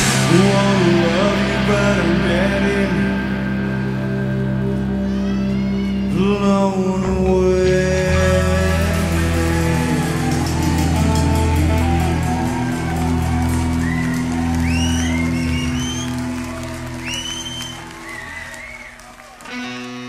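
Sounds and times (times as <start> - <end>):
crowd cheering: 0.0 - 20.0
rock band chord ringing: 0.0 - 20.0
audience whistles and whoops: 8.7 - 20.0.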